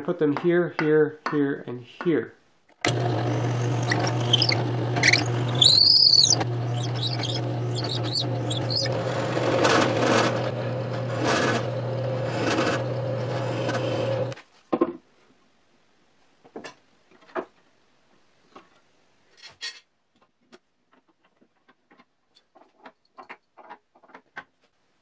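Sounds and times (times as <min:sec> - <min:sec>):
drill press boring into wood: 0:02.8 - 0:14.4
drill bit squeal: 0:03.3 - 0:09.0.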